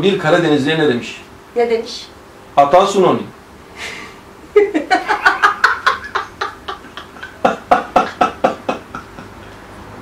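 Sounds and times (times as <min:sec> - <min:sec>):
woman laughing: 0:03.8 - 0:09.6.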